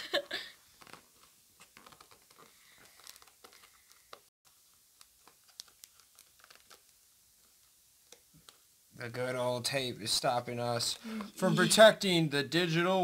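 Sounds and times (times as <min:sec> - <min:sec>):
plastic packaging crinkling: 0:00.7 - 0:08.6.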